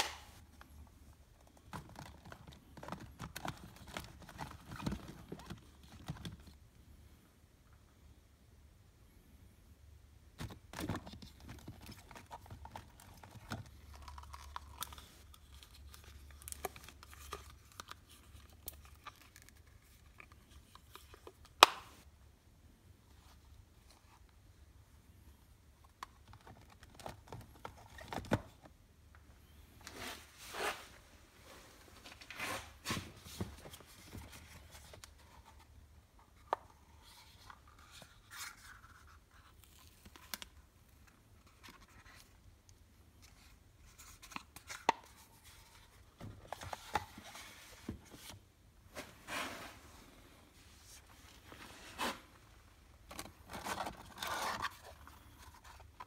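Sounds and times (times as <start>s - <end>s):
cardboard rustling and scraping: 29.8s - 35.7s, 45.4s - 56.0s.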